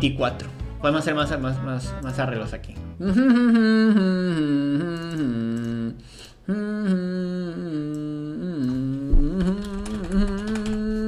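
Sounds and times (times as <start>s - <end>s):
man humming: 2.9s - 11.0s.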